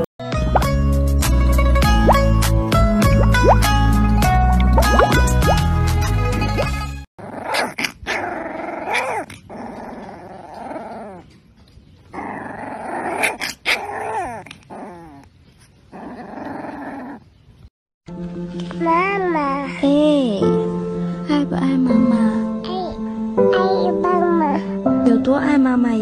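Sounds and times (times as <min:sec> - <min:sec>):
puppy growling and yipping: 0:07.2 - 0:17.6.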